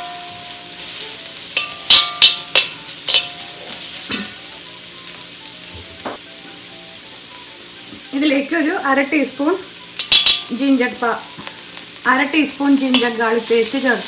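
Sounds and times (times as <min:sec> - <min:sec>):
onions sizzling in a pan: 0:00.0 - 0:14.0
metal spatula knocking and scraping pan: 0:01.6 - 0:03.4, 0:10.0 - 0:10.5.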